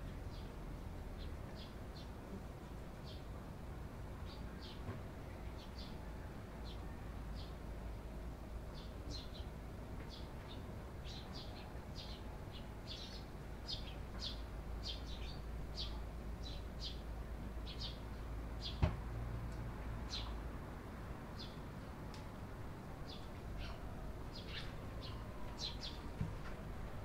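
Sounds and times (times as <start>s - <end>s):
sparrows chirping: 1.2s - 2.2s, 3.0s - 3.3s, 4.2s - 4.8s, 5.4s - 7.6s, 8.6s - 18.8s, 20.1s - 20.4s, 21.3s - 21.6s, 23.1s - 26.2s.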